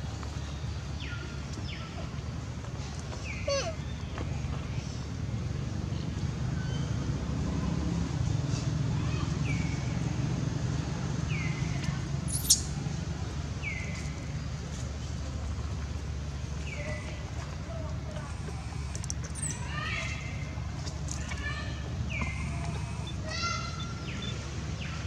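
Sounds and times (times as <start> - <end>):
baby monkey squeaky cries: 12.3 - 12.7.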